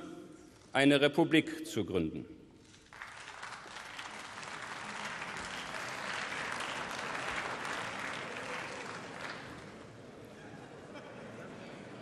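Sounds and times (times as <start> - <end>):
audience applause: 2.9 - 10.0.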